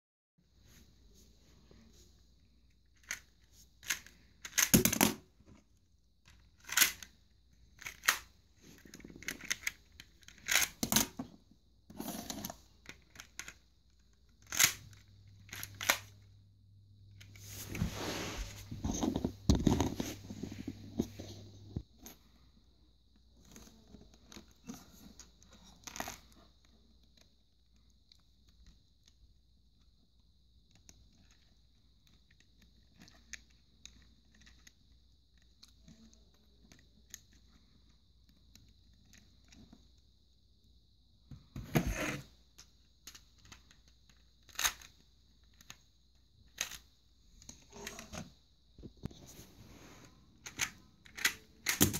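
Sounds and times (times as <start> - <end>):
plastic toy pistol clicks and rattles: 3.8 - 4.9, 6.6 - 7.1, 7.8 - 8.3, 9.2 - 10.9, 14.4 - 14.9.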